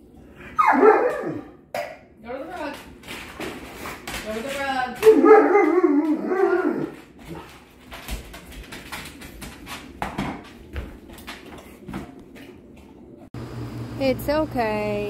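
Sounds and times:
dog whining howl: 0.5s - 1.5s, 5.0s - 7.0s.

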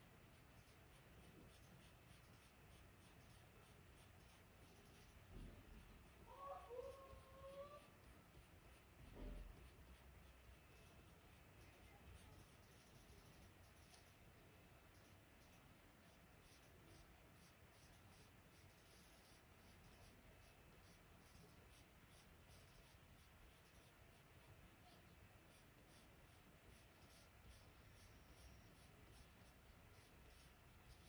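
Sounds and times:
coloured pencil scratching on paper: 0.0s - 31.0s.

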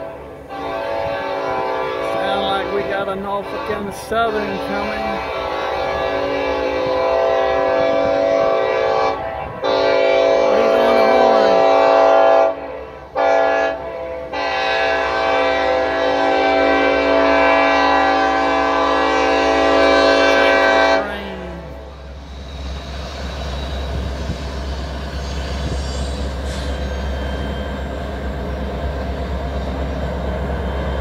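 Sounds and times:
locomotive air horn blasts: 0.0s - 22.0s.

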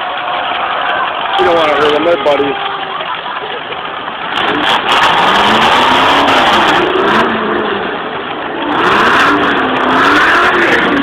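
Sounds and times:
car engines revving hard: 3.1s - 11.0s.

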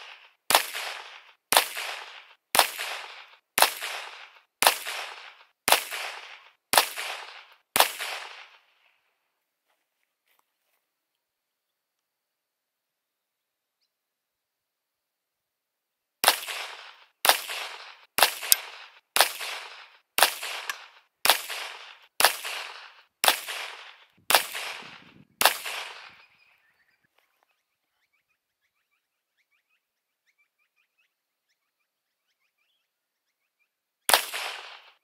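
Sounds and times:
pistol shots: 0.0s - 8.8s, 16.2s - 26.3s, 34.1s - 35.0s.

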